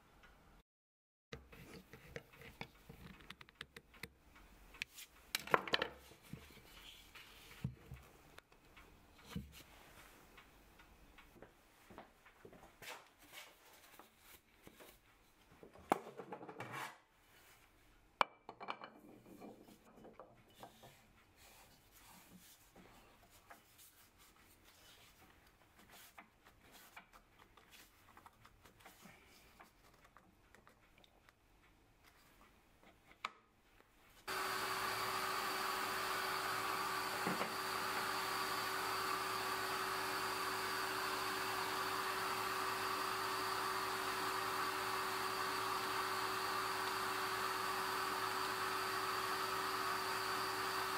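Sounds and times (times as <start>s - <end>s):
lathe whining: 34.3s - 50.9s.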